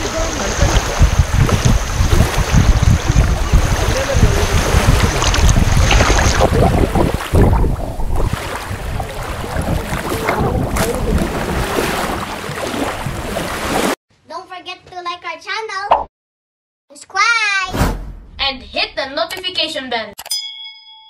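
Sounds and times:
wind buffeting microphone: 0.0s - 13.7s
water lapping: 0.0s - 14.0s.

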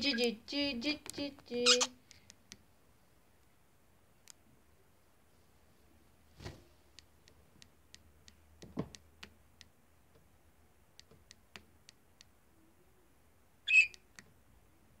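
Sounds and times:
bird beak clicking on mirror: 13.7s - 14.3s.

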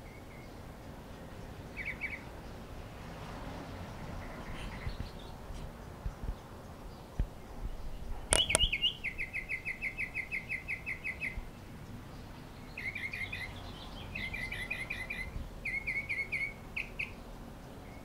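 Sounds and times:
bird singing trills: 0.0s - 2.6s, 4.2s - 18.0s
sharp clicks: 8.3s - 8.9s.

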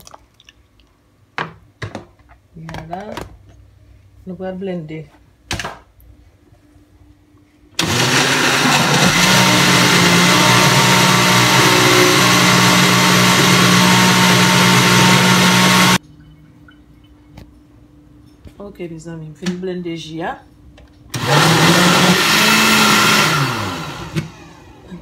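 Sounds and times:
blender running: 7.8s - 16.0s, 21.2s - 25.0s.

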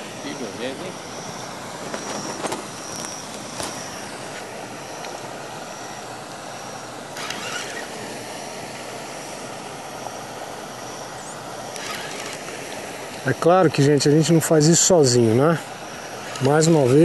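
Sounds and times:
faint high whine: 0.0s - 17.0s
fishing reel cranking: 7.2s - 7.9s, 11.8s - 12.4s.

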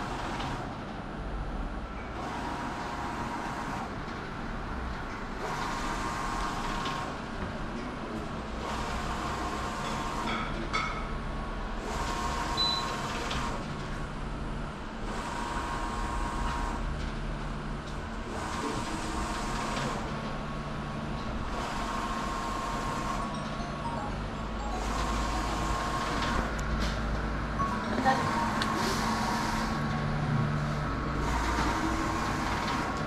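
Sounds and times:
printer carriage whirring: 0.0s - 33.0s
machine hum: 11.2s - 33.0s.

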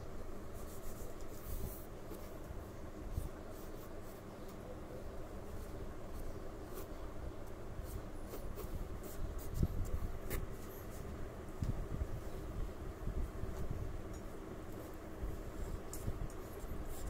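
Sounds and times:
pencil scratching on paper: 7.8s - 11.1s.

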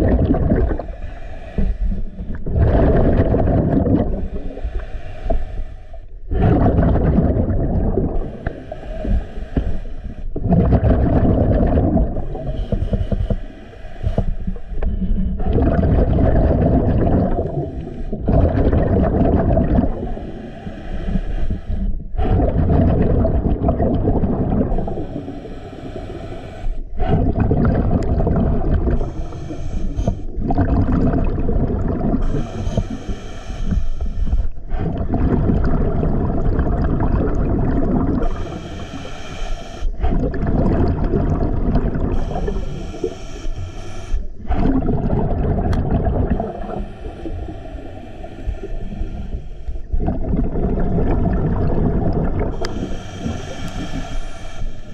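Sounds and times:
exhaled bubbles rumbling: 0.0s - 26.2s, 26.8s - 54.9s
regulator hissing inhale: 0.7s - 2.4s, 4.1s - 6.2s, 8.2s - 10.4s, 12.3s - 15.4s, 17.5s - 18.2s, 19.9s - 22.2s, 24.8s - 27.0s, 28.9s - 30.4s, 32.2s - 34.8s, 38.2s - 40.1s, 42.0s - 44.6s, 46.4s - 50.0s, 52.5s - 54.9s.

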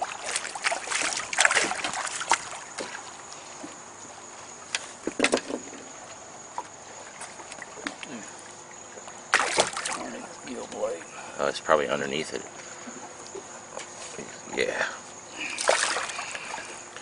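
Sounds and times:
water splashing against boat: 0.0s - 3.3s, 4.8s - 11.0s, 15.4s - 16.8s.

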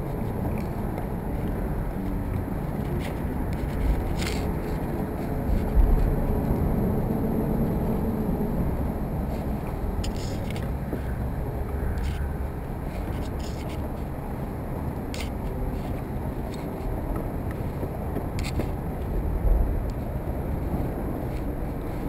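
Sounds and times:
light clicks and scrapes: 0.0s - 6.9s, 9.2s - 22.0s
wind buffeting microphone: 0.0s - 22.0s.

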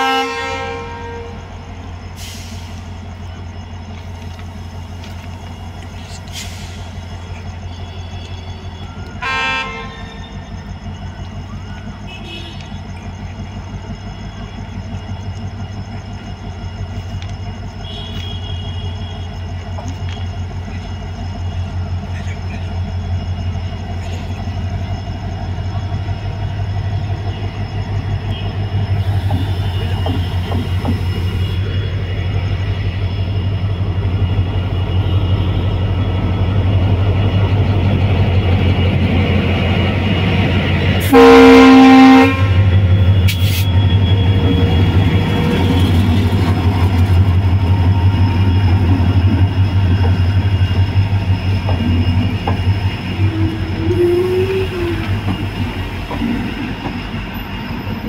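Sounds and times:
locomotive horn blast: 0.0s - 1.5s, 9.2s - 10.4s, 17.8s - 19.3s, 41.0s - 44.5s
diesel locomotive engine under load: 0.0s - 58.0s
train coaches rolling past: 0.0s - 58.0s.

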